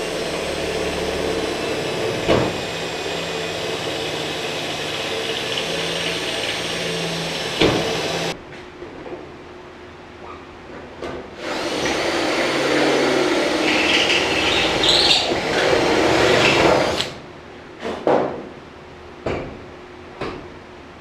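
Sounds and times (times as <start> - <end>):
cordless drill boring through steel: 0.0 - 8.4, 11.4 - 17.2.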